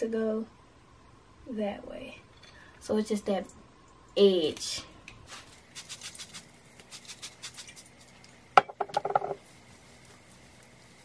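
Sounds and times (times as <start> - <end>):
spray bottle squirts: 5.7 - 7.9.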